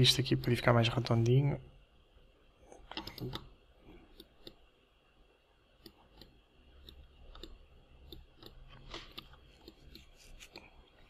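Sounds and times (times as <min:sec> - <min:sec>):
low steady hum: 0:00.0 - 0:11.0
computer mouse clicks: 0:02.9 - 0:04.6, 0:05.8 - 0:10.8.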